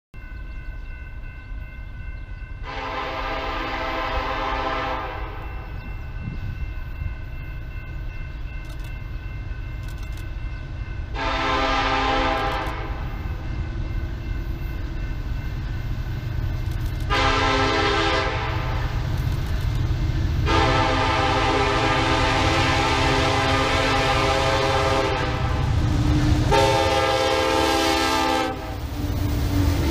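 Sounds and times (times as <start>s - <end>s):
low train rumble: 0.2s - 29.9s
locomotive air horn blasts: 2.6s - 5.5s, 11.1s - 13.1s, 17.1s - 18.9s, 20.4s - 29.1s.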